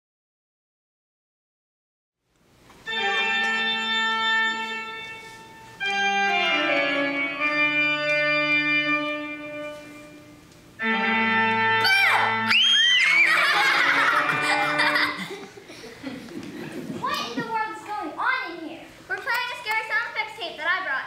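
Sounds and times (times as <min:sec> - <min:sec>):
organ chords: 0:02.8 - 0:17.1.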